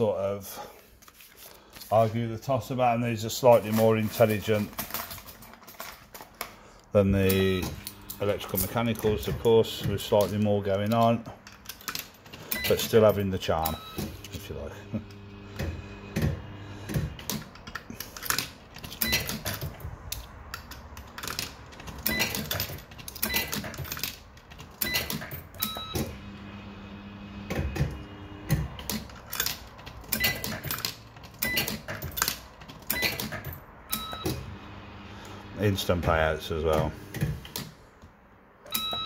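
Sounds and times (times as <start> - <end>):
machine beeps: 7.3 - 8.3, 12.5 - 12.9, 13.6 - 14.2, 19.0 - 19.4, 22.1 - 22.5, 24.8 - 26.2, 30.2 - 30.6, 31.4 - 31.8, 33.9 - 34.5, 38.7 - 39.0.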